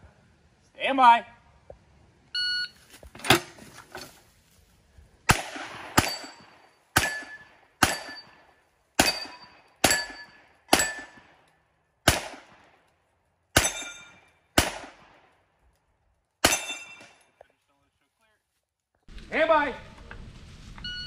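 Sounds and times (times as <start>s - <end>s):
pistol shots echoing: 5.3s - 8.4s, 9.0s - 12.8s, 13.5s - 15.4s, 16.4s - 17.1s
metallic ring of steel target: 6.0s - 11.2s, 13.6s - 14.4s, 16.4s - 17.3s.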